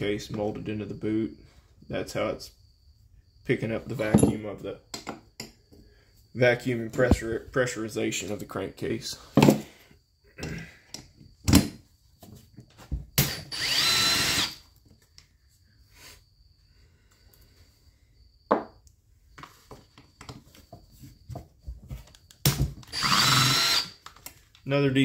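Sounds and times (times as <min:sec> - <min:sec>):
tools and parts rattling: 0:03.9 - 0:05.6
cordless drill whine: 0:13.2 - 0:14.7, 0:22.8 - 0:24.1.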